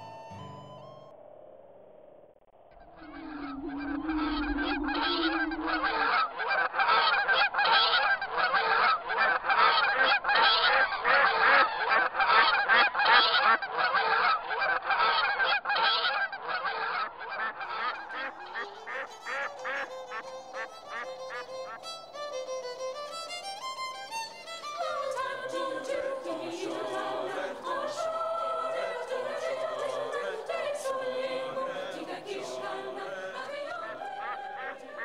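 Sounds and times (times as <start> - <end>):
fiddle music: 0.0 - 1.1, 18.7 - 28.4
geese honking: 2.7 - 35.0.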